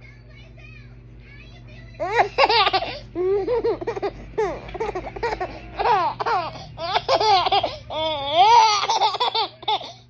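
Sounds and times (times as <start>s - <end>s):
baby giggling: 2.0s - 10.0s.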